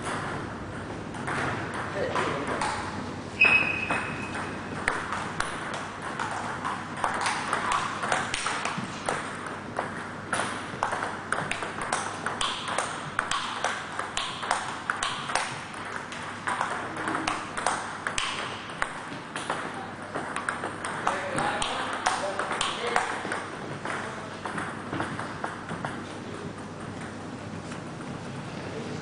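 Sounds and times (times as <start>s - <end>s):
table tennis ball clicking: 3.7s - 26.0s.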